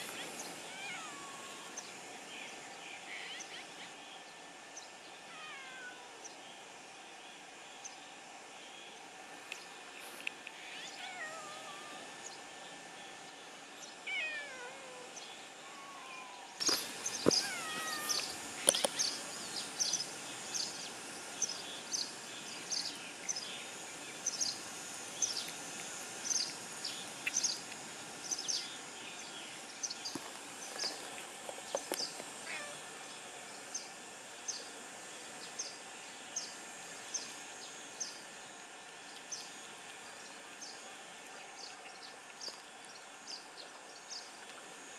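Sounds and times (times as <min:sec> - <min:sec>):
cat meowing: 0:00.7 - 0:01.6, 0:05.3 - 0:06.1, 0:14.1 - 0:15.1, 0:17.3 - 0:18.3, 0:32.4 - 0:32.8.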